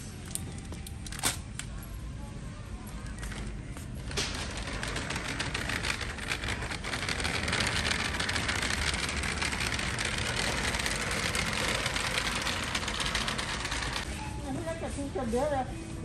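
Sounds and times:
shopping basket wheels rattling: 0:03.1 - 0:14.1.

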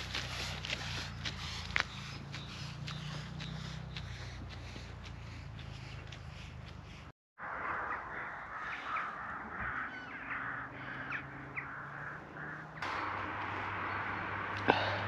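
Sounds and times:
crows cawing: 0:07.6 - 0:13.3, 0:14.6 - 0:15.0.

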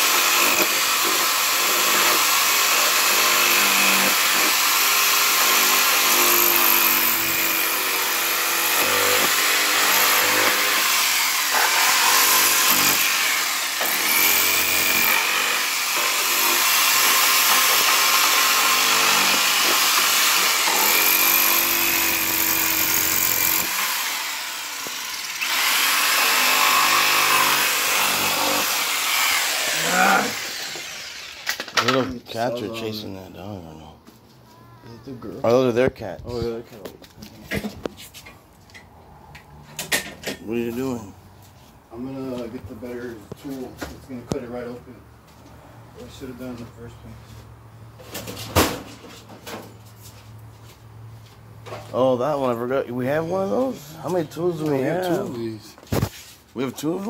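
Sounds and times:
power saw cutting plastic: 0:00.0 - 0:32.1.

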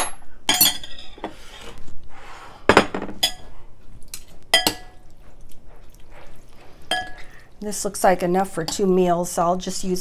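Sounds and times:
utensils clinking on glass bowl: 0:00.0 - 0:01.3, 0:02.7 - 0:03.5, 0:04.5 - 0:05.1, 0:06.9 - 0:07.4.

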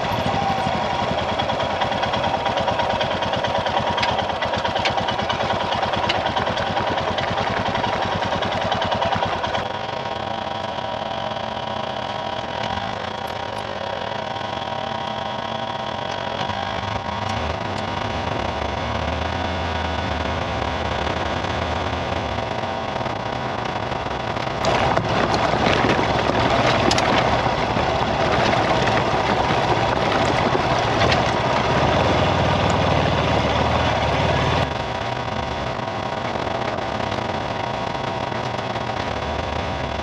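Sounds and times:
vehicle engine driving on gravel: 0:00.0 - 0:40.0
rushing noise with clicks: 0:20.0 - 0:40.0.

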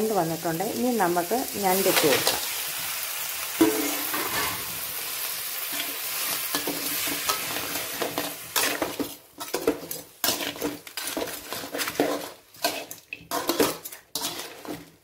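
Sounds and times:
food sizzling: 0:00.0 - 0:15.0
spatula scraping metal pan: 0:05.7 - 0:15.0.

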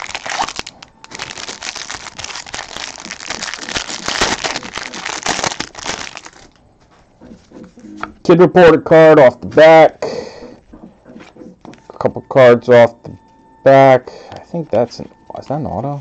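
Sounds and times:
foil wrapper tearing and crinkling: 0:00.0 - 0:06.6.

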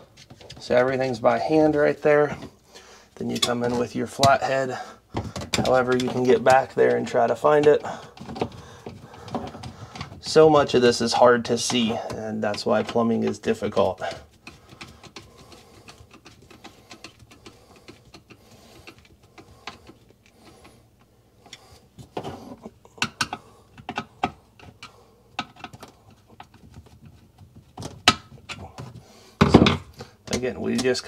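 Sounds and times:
screwdriver clicks and taps on metal: 0:23.0 - 0:27.2.

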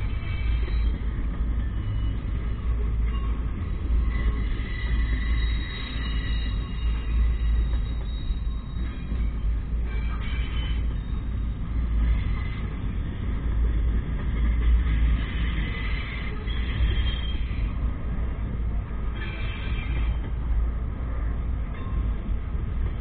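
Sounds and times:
freight train rumbling: 0:00.0 - 0:23.0
faint wheel squeals: 0:03.1 - 0:12.8.

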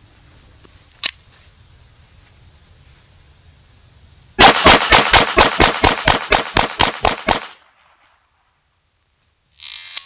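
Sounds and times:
pistol rapid fire: 0:04.4 - 0:08.0.

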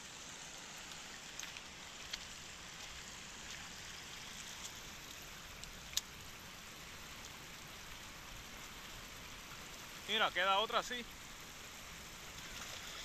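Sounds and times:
river running over stones: 0:00.0 - 0:13.0.

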